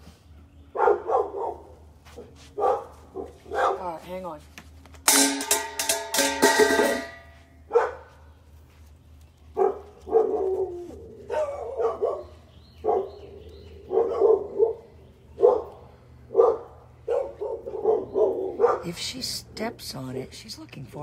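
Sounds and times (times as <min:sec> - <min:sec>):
dog barking: 0:00.7 - 0:04.0, 0:07.7 - 0:08.2, 0:09.5 - 0:13.2, 0:13.8 - 0:19.0.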